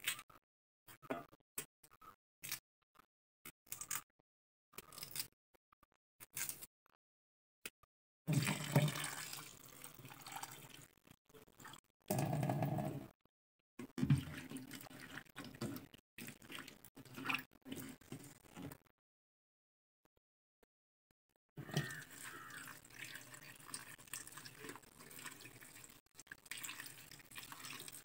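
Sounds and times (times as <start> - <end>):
tap water running into pot: 8.3 - 10.8, 21.6 - 28.0.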